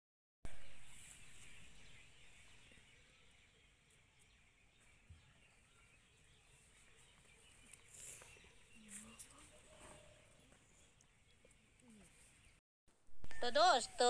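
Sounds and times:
faint chirps and ticks: 6.8 - 9.5, 10.4 - 12.6.

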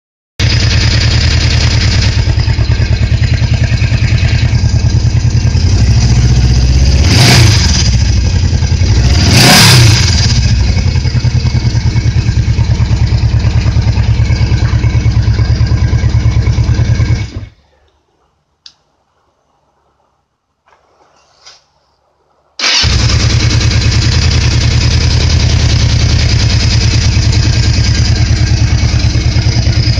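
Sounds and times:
motorcycle engine running and revving: 0.4 - 17.6, 22.6 - 29.9.

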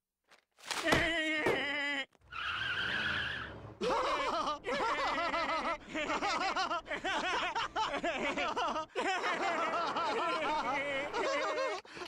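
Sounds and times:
cartoon man laughing: 3.8 - 11.8.

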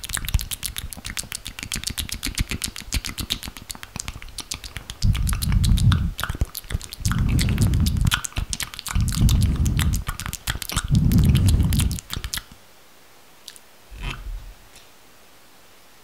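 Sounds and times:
dull low rubbing: 10.8 - 12.1, 13.9 - 14.7.

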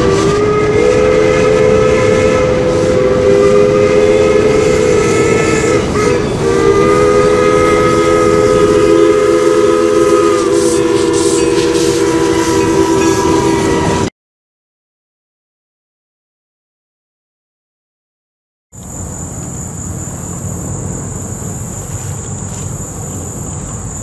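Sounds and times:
steam locomotive chime whistle: 0.0 - 14.1.

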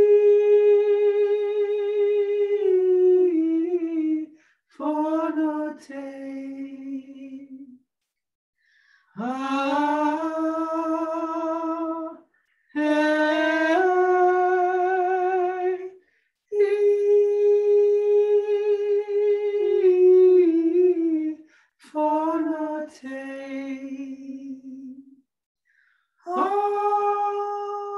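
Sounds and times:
person singing wordless notes: 9.2 - 25.0, 26.3 - 27.9.

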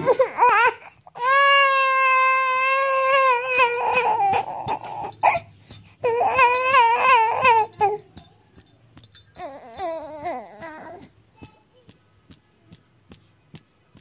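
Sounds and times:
infant crying: 0.0 - 8.0, 9.4 - 11.1.

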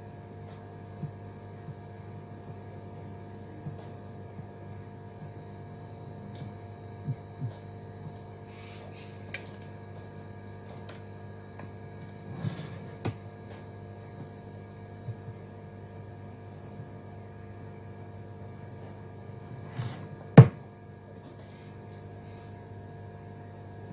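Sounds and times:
electrical hum: 0.0 - 23.9.

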